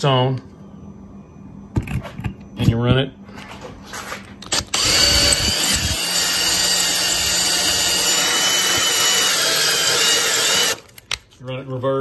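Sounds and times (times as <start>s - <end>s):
drill bit grinding on stone: 4.4s - 10.9s.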